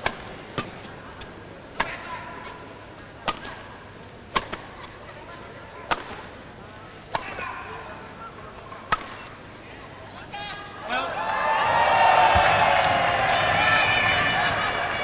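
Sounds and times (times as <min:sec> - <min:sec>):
shuttlecock hit by rackets: 0:00.0 - 0:00.9, 0:01.7 - 0:02.1, 0:03.2 - 0:03.6, 0:04.3 - 0:04.8, 0:05.9 - 0:06.3, 0:07.1 - 0:07.5, 0:08.9 - 0:09.4.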